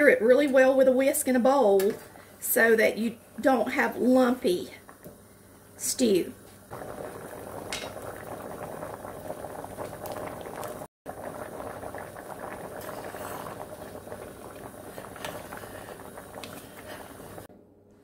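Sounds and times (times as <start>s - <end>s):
stew bubbling and popping: 6.5s - 17.5s.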